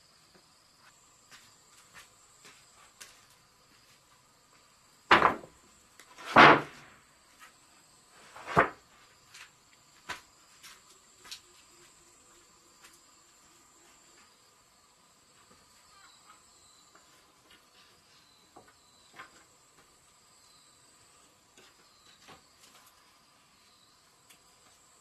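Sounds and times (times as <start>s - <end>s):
insects buzzing: 0.0s - 25.0s
wooden planks clacking: 5.1s - 5.5s, 6.1s - 7.0s.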